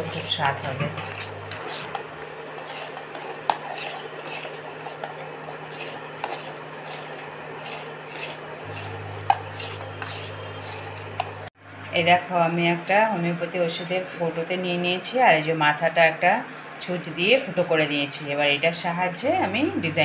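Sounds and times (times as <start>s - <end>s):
metal spoon stirring in a pot: 0.0s - 11.5s
cooktop humming: 0.0s - 12.2s.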